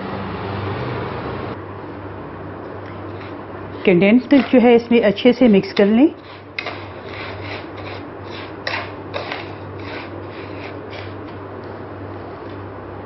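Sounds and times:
wooden spatula scraping frying pan: 3.2 - 4.8, 6.1 - 11.3.

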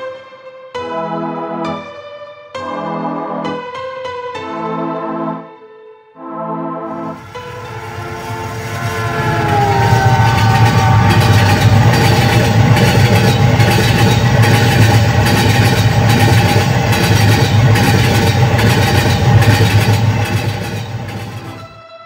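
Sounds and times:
train rumbling on track: 7.0 - 21.8.

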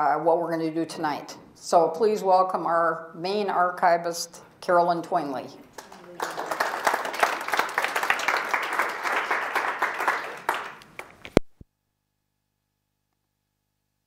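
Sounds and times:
audience applauding: 5.8 - 11.3.

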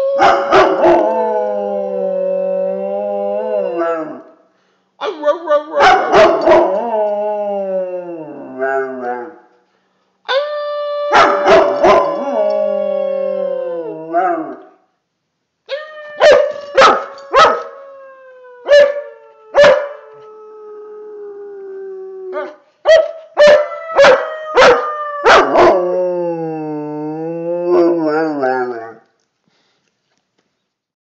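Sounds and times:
dog barking: 5.8 - 6.6, 11.1 - 12.0, 16.2 - 17.7, 22.4 - 25.4
dog howling: 10.6 - 14.6, 23.6 - 28.9.

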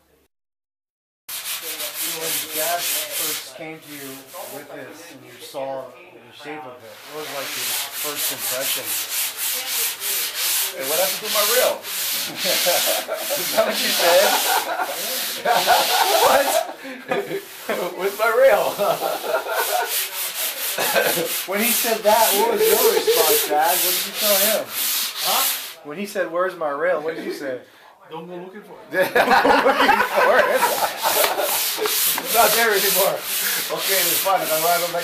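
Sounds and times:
sanding block rasping: 1.3 - 4.7, 6.9 - 25.8, 29.9 - 35.0.

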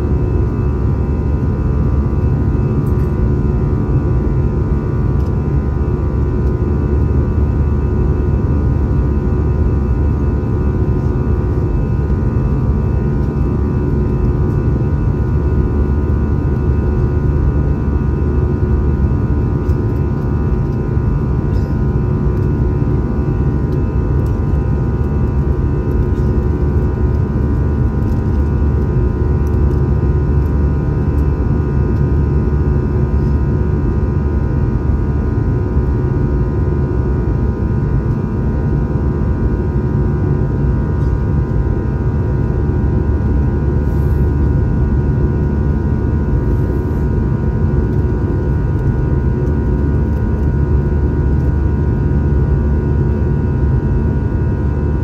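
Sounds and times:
aircraft cabin engine roar: 0.0 - 55.0.

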